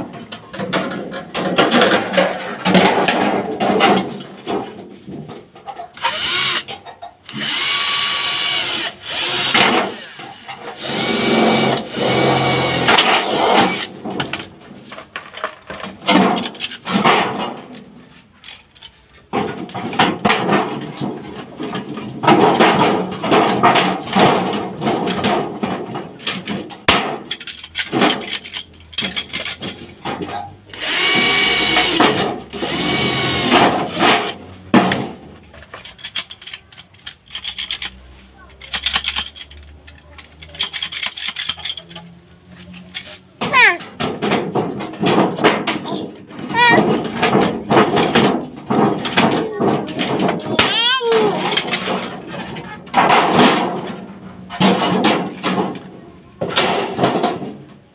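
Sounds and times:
power tool whining on metal: 30.7s - 34.0s.

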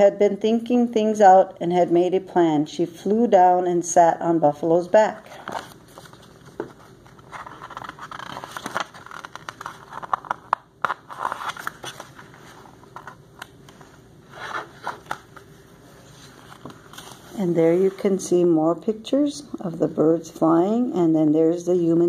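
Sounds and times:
book pages rustling: 5.3s - 18.2s.

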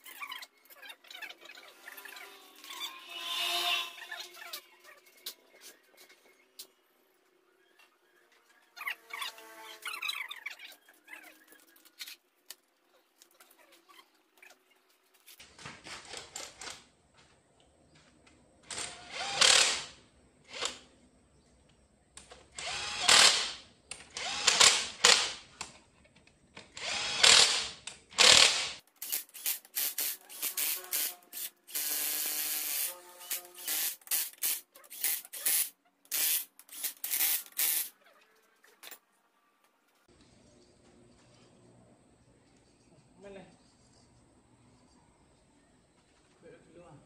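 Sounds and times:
pneumatic tool bursts: 18.7s - 20.8s, 22.6s - 25.4s, 26.8s - 37.9s
pneumatic tool whine: 26.8s - 37.9s.

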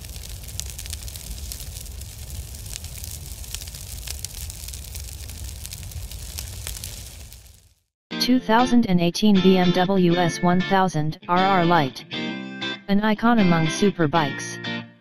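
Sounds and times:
fire crackling: 0.0s - 7.9s
low rumble of flames: 0.0s - 7.9s.

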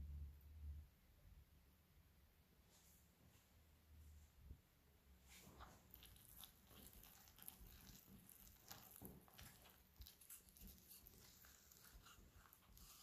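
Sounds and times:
wooden spoon stirring dough: 5.2s - 13.0s.

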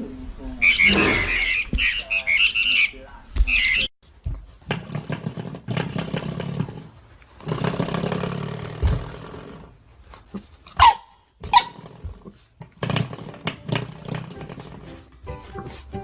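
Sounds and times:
puppy yapping: 10.6s - 12.1s.

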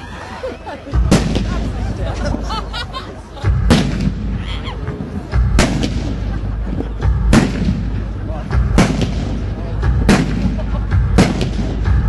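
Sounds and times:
firework bangs: 1.0s - 1.8s, 5.5s - 6.3s, 7.2s - 12.0s.

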